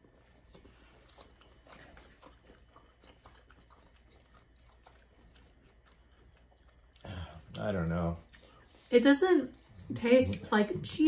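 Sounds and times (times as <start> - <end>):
faint chewing mouth clicks: 0.0 - 7.6.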